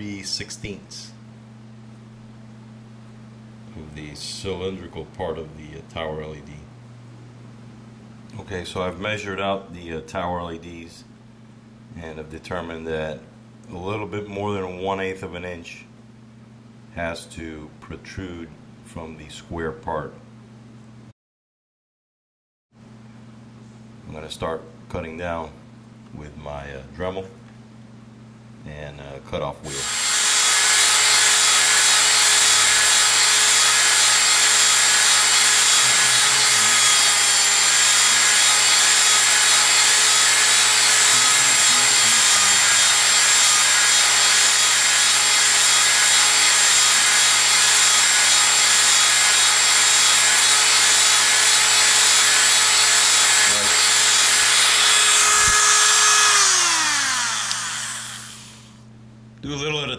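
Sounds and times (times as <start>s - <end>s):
rotary tool whining: 29.7s - 58.8s
rotary tool spinning down: 53.6s - 58.7s.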